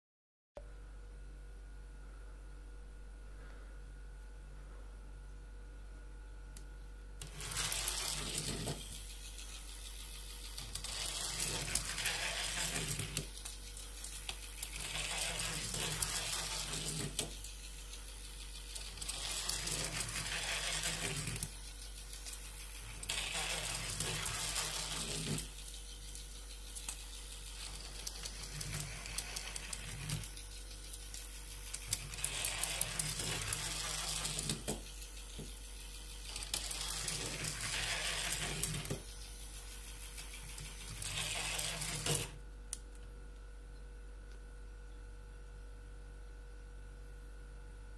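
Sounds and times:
toy train motor whirring: 7.2s - 42.4s.

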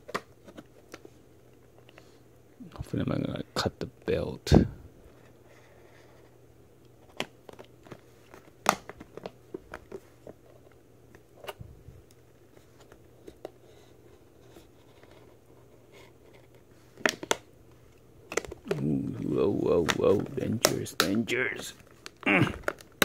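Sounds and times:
plastic packaging clicking and crackling: 6.8s - 12.2s, 16.3s - 17.5s, 18.2s - 23.0s.

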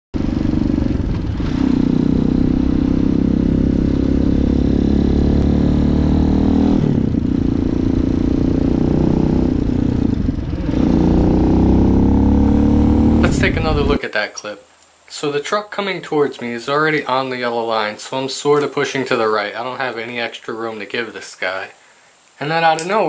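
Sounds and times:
motorcycle engine running: 0.2s - 14.0s.

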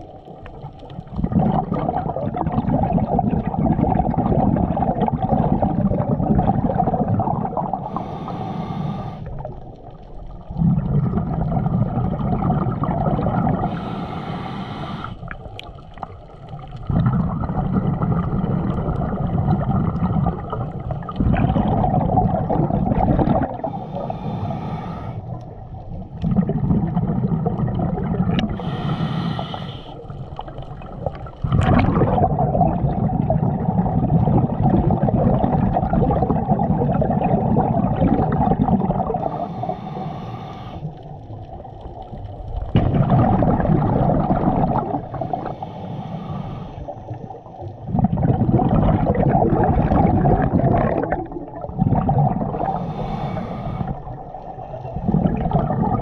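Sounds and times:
bubbling exhales: 0.0s - 56.0s
hissing regulator inhales: 7.8s - 9.3s, 13.6s - 15.3s, 23.6s - 25.4s, 28.5s - 30.1s, 39.2s - 41.0s, 45.2s - 47.2s, 52.6s - 54.0s.

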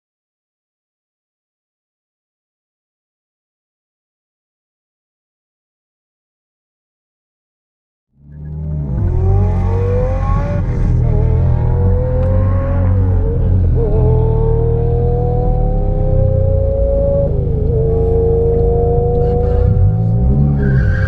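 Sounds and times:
car engine from inside cabin: 8.2s - 20.8s.

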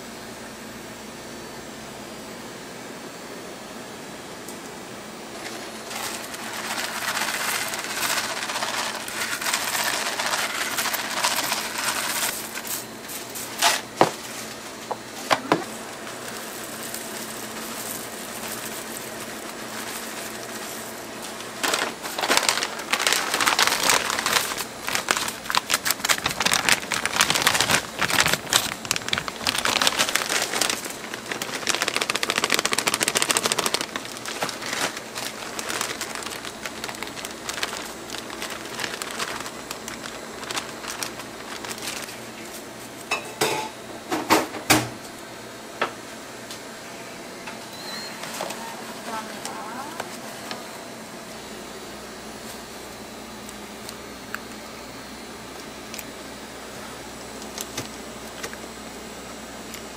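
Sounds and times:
cereal pouring and rattling: 5.3s - 14.8s, 15.5s - 42.6s.

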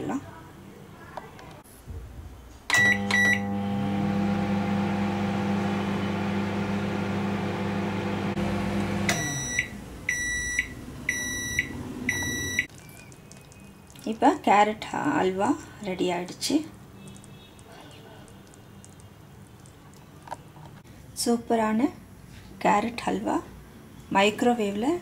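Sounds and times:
microwave keypad beeps: 2.7s - 3.6s, 9.1s - 12.7s
microwave end beeps: 2.7s - 4.4s, 7.6s - 12.7s
microwave oven humming: 2.7s - 12.7s.

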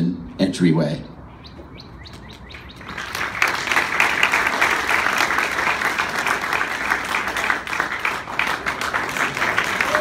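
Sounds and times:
crowd applauding: 2.5s - 10.0s.

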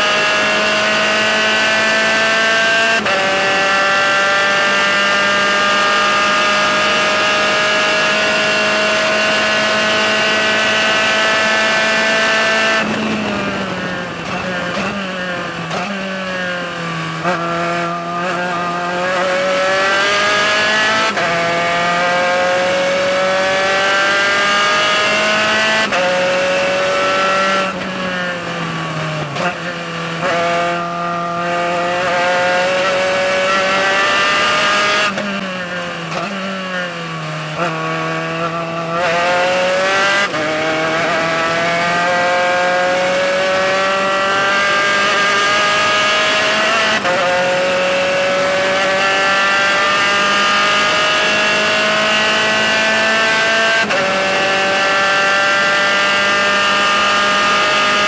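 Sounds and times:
racing car engine revving: 0.0s - 58.0s.

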